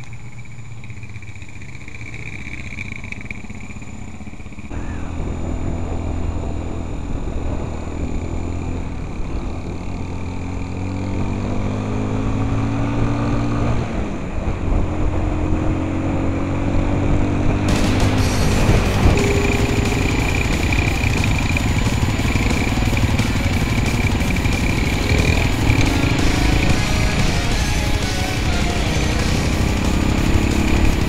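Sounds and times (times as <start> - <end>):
dirt bike engine accelerating: 0.0 - 31.0.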